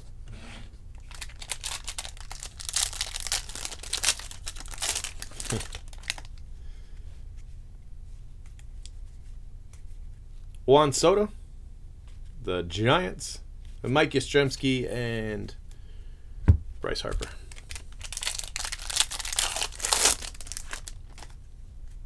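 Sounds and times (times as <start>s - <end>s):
cards rustling: 1.0s - 6.4s, 17.5s - 21.4s
foil wrapper tearing and crinkling: 1.0s - 6.4s, 17.5s - 21.4s.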